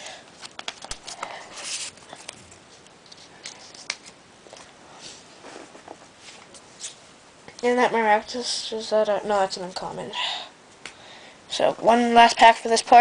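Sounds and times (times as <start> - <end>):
packaging rustling: 0.4 - 2.4.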